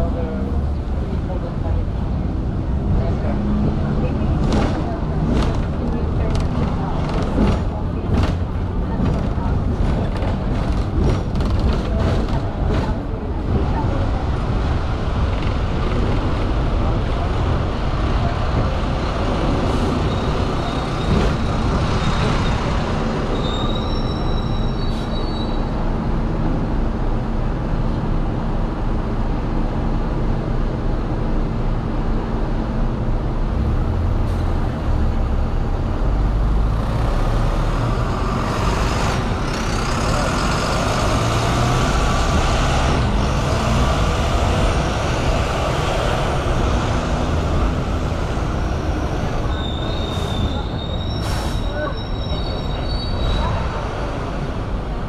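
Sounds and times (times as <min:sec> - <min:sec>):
tram wheels rumbling on rails: 0:00.0 - 0:55.0
wheel squeal: 0:20.0 - 0:25.7, 0:49.0 - 0:53.8.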